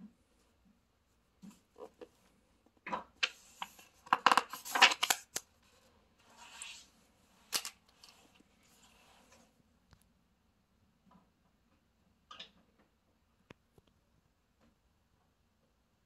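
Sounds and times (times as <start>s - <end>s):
book page turning: 3.2s - 5.5s, 6.3s - 6.9s, 7.5s - 8.2s
paper clicks: 3.2s - 5.5s.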